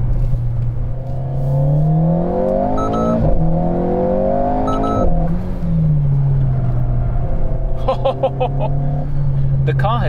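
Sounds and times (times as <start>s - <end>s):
car engine revving: 0.0s - 10.0s
shift warning beeps: 2.8s - 3.3s, 4.6s - 5.1s.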